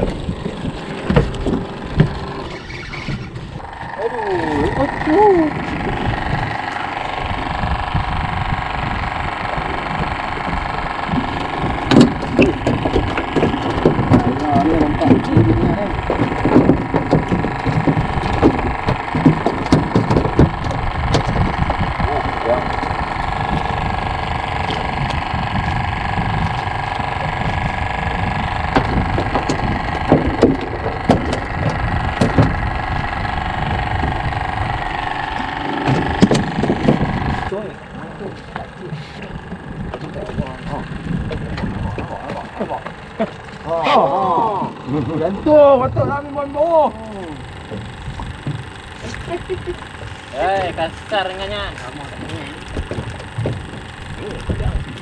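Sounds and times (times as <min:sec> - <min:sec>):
boat motor droning: 0:00.0 - 0:55.0
clatter of sharp knocks: 0:11.1 - 0:22.0, 0:28.7 - 0:33.0.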